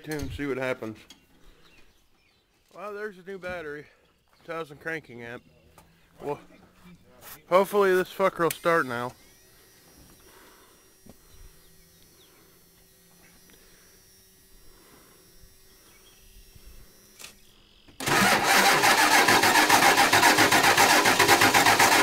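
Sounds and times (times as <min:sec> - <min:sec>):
truck starter cranking engine: 0:18.0 - 0:22.0.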